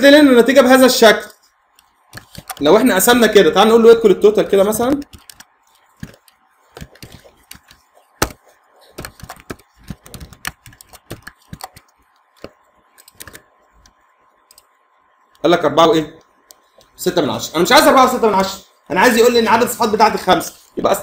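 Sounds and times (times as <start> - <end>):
typing on computer keyboard: 2.1 - 2.7, 4.9 - 14.7.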